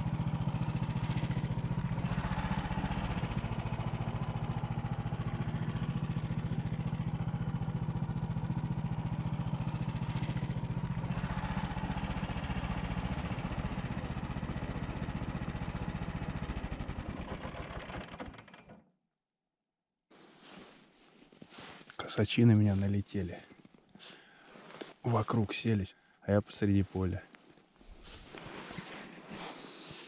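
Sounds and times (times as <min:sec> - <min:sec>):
vehicle engine running: 0:00.0 - 0:18.5.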